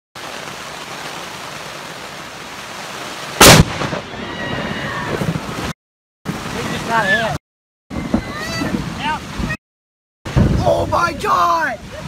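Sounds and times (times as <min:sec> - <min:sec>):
steady rain hiss: 0:00.2 - 0:07.4, 0:08.4 - 0:09.6, 0:10.3 - 0:12.0
sharp thunder crack: 0:03.4 - 0:05.7.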